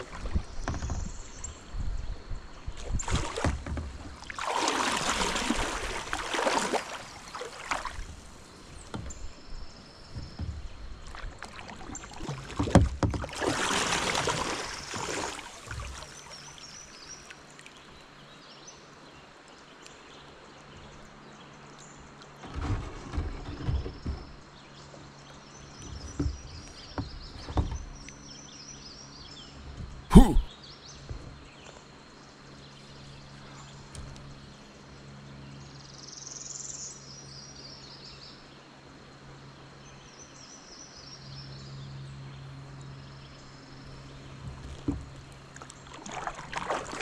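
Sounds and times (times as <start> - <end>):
kayak paddle strokes in water: 0.0 - 1.6, 2.6 - 17.3, 44.1 - 47.0
water rushing along hull: 0.0 - 31.9, 41.9 - 47.0.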